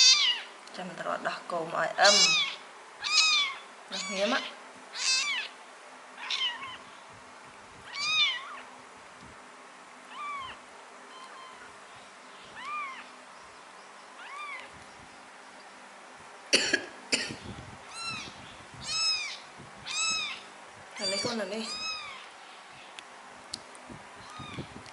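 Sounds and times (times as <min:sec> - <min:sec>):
kittens mewing: 0:00.0 - 0:00.5, 0:02.0 - 0:05.6, 0:06.2 - 0:06.9, 0:07.9 - 0:08.7, 0:10.1 - 0:11.8, 0:12.5 - 0:13.1, 0:14.2 - 0:14.7, 0:17.9 - 0:22.3, 0:24.2 - 0:24.8.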